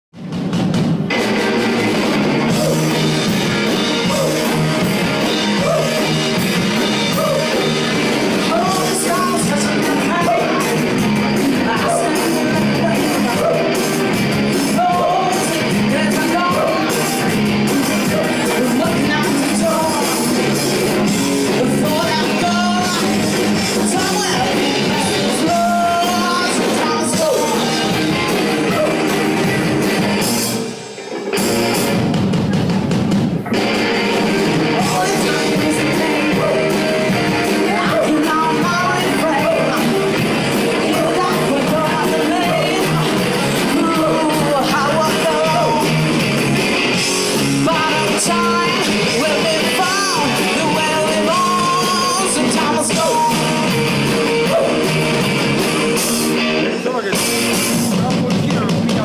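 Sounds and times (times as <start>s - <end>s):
drums: 0.0s - 59.0s
electric guitars: 0.2s - 59.0s
woman singing: 8.4s - 13.8s, 14.7s - 17.2s, 18.4s - 20.3s, 21.6s - 29.0s, 34.6s - 40.0s, 40.7s - 46.0s, 47.6s - 53.7s.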